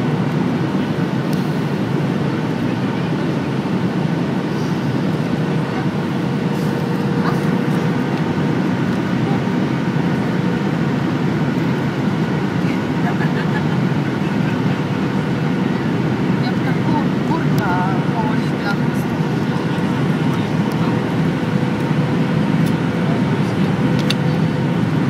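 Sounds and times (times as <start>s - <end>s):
airplane cabin rumble: 0.0s - 25.0s.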